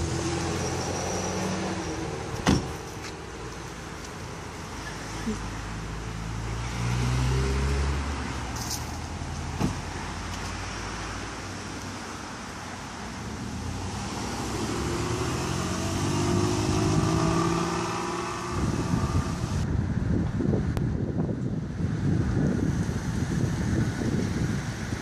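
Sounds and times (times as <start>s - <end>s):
car engine pulling away: 4.8s - 8.6s, 13.2s - 19.6s.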